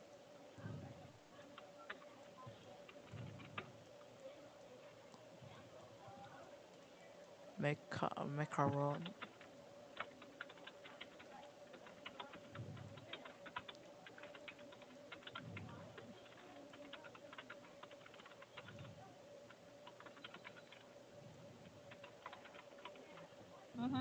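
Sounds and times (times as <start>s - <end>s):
steady low hum: 0.0s - 24.0s
keyboard typing clicks: 1.5s - 3.8s, 8.6s - 21.0s, 21.6s - 23.3s.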